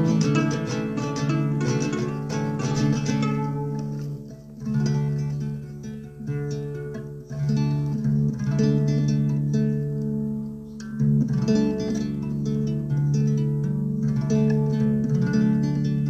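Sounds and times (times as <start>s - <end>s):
acoustic guitar strumming chords: 0.0s - 10.0s.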